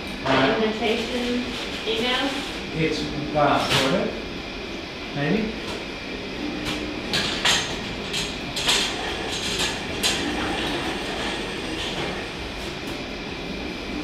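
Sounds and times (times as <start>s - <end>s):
steady background noise: 0.0s - 14.0s
knocks and clatters: 7.1s - 13.0s.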